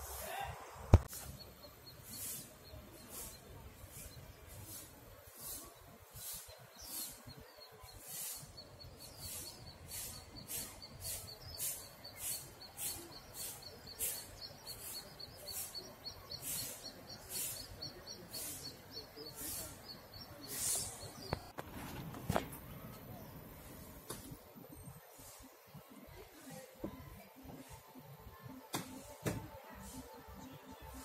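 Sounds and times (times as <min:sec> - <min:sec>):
faint background noise: 0:00.0 - 0:31.0
high-pitched wildlife chirping: 0:06.2 - 0:21.5.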